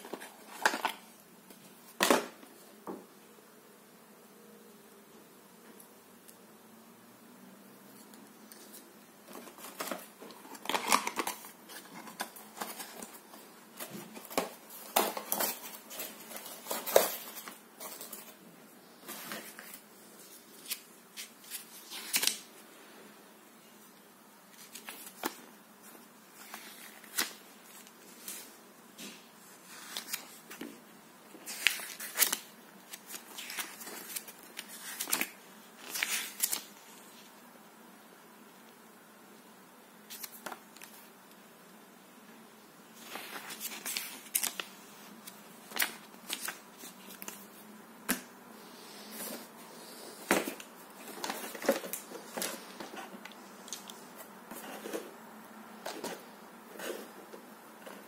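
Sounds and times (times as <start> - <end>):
paper rustling: 0.0 - 2.3, 8.0 - 18.4, 19.0 - 22.5, 24.5 - 28.5, 31.3 - 36.8, 43.0 - 48.2, 50.2 - 55.2.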